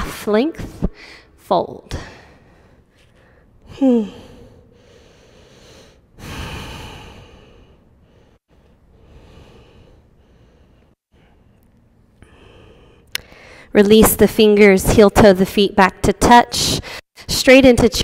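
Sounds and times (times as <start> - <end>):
woman breathing audibly: 0.9 - 13.8.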